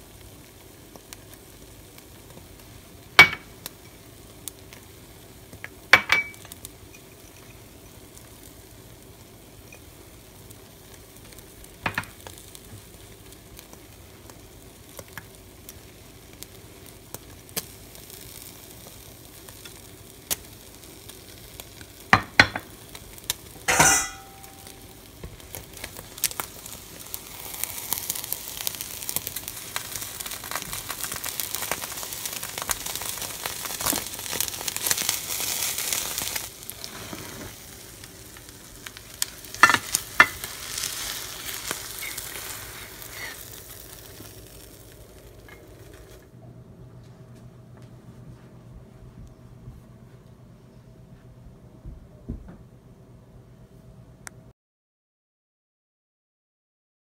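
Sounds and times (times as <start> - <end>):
omelette sizzling in frying pan: 0.0 - 46.3
bowls and utensils clinking: 23.7 - 24.9
spatula working in pan: 23.7 - 37.7, 39.2 - 44.0.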